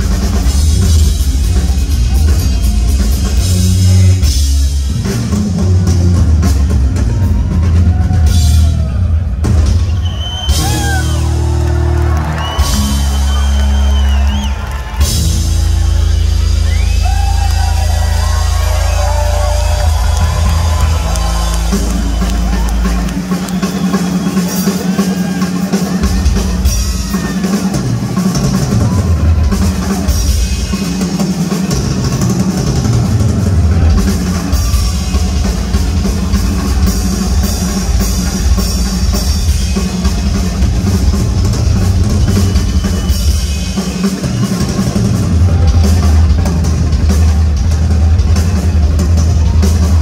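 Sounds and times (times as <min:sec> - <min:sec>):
bass drum: 0:00.0 - 0:23.6, 0:44.7 - 0:50.0.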